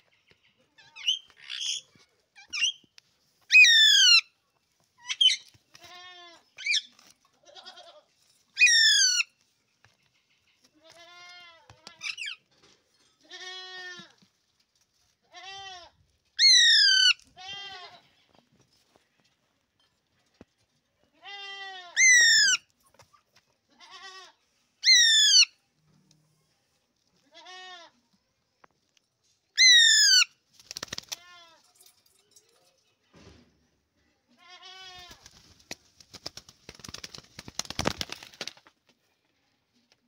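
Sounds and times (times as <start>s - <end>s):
young goat bleating: 5.8s - 6.4s, 7.4s - 8.1s, 10.8s - 11.7s, 13.2s - 14.1s, 15.2s - 16.0s, 17.4s - 18.0s, 21.2s - 22.1s, 23.7s - 24.4s, 27.2s - 28.0s, 34.4s - 35.2s.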